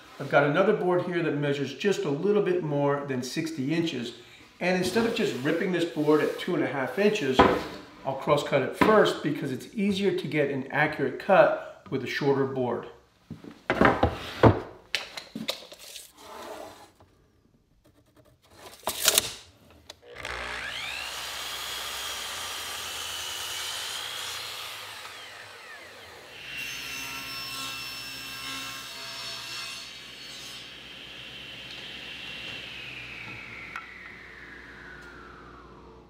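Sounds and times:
knocks and clunks of board: 7.4s - 7.8s, 13.7s - 15.5s
miter saw cutting: 20.0s - 28.9s, 29.8s - 36.0s
table saw whine: 20.0s - 36.0s.

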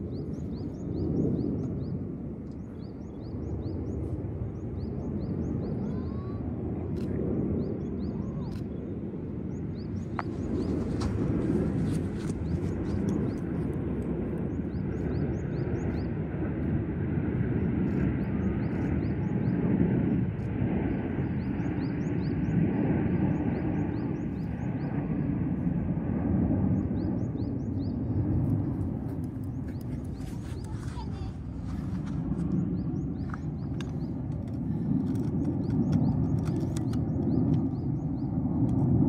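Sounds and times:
jet aircraft rumbling overhead: 0.0s - 39.0s.

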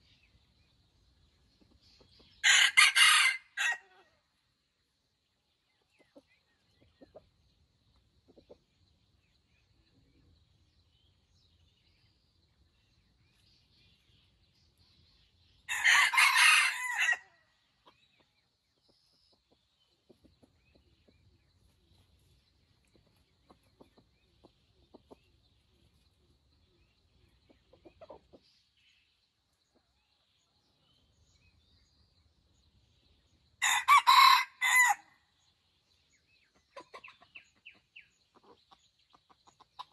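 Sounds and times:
rooster crowing: 2.4s - 3.9s, 15.7s - 17.3s, 33.6s - 35.1s.

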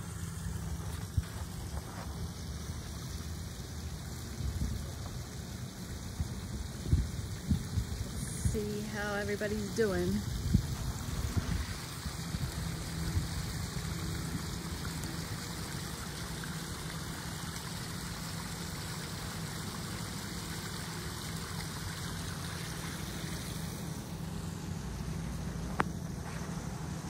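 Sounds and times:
waterfall splashing over rocks: 0.0s - 26.5s.

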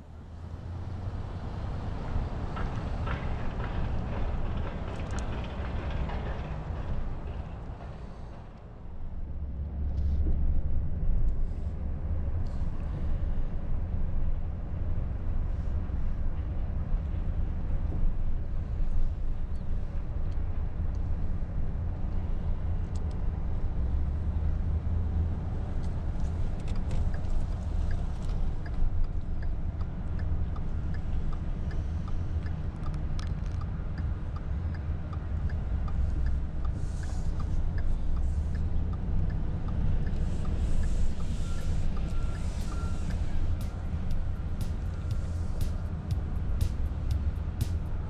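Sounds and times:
car rumble from inside cabin: 25.9s - 48.0s
faint regular ticking: 28.6s - 48.0s.

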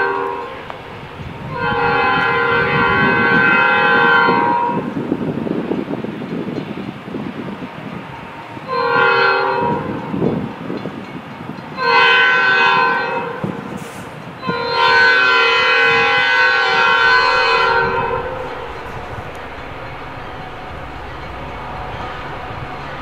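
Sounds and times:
train air horn blasts: 0.0s - 5.2s, 8.6s - 10.4s, 11.8s - 23.0s
train rumble: 0.0s - 23.0s.

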